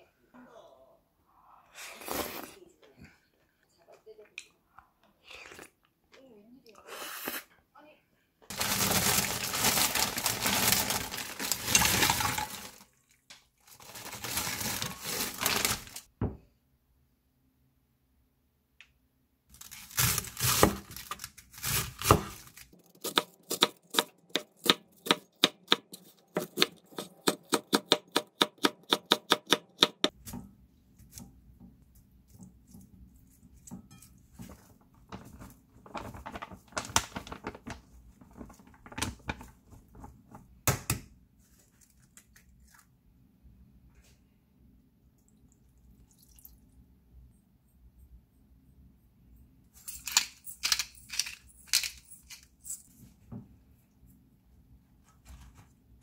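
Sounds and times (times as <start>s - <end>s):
plastic packaging rustling: 8.5s - 13.0s, 13.6s - 16.1s, 19.5s - 22.8s, 34.3s - 40.5s
knife chopping on wooden board: 23.1s - 30.2s.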